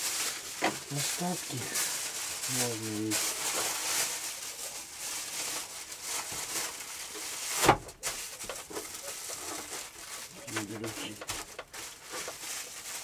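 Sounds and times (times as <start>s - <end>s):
aluminium foil crinkling: 0.0s - 13.0s.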